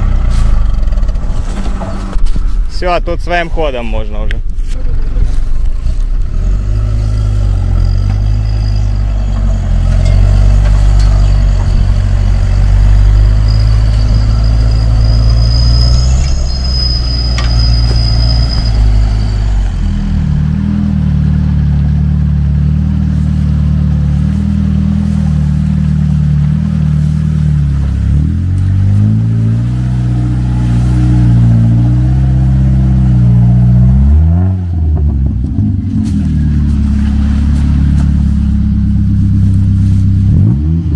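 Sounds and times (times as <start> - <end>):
off-roader engine revving: 0.0 - 3.4, 4.1 - 40.9
high whine: 0.0 - 40.4
off-roader engine under load: 0.0 - 40.9.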